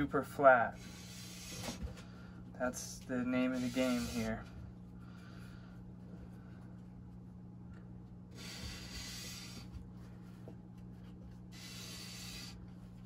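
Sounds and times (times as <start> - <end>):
faint low hum: 0.0 - 13.0
metal scraping on sandpaper: 3.5 - 4.4.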